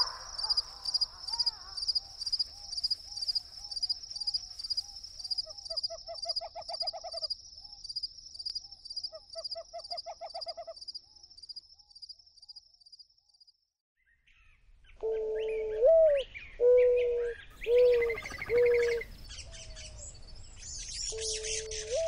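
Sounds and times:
owl hooting: 0.0 - 3.5, 15.0 - 19.1, 21.1 - 22.0
high-pitched insect trill: 0.0 - 9.9.

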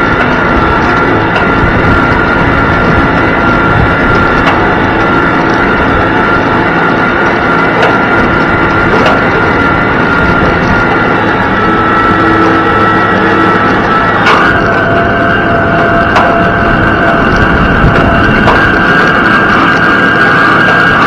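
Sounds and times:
high-pitched whine: 0.0 - 21.0
tractor engine running under load: 0.0 - 21.0
sharp knocks: 15.8 - 18.9.

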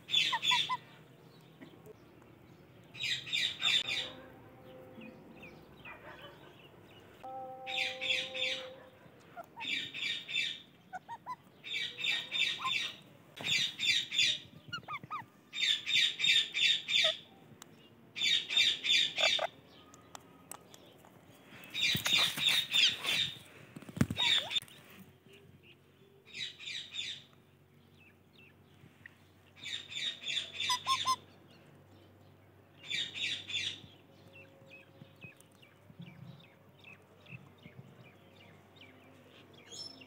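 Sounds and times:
parakeets squawking: 0.1 - 0.8, 9.4 - 17.3, 18.2 - 19.6, 21.8 - 23.4, 24.1 - 24.6, 29.6 - 31.2.

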